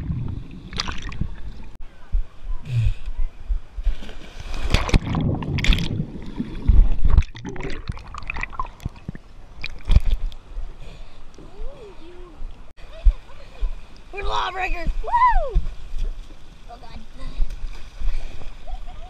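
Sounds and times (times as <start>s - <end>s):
underwater gurgling: 0.0s - 1.8s, 4.6s - 10.2s.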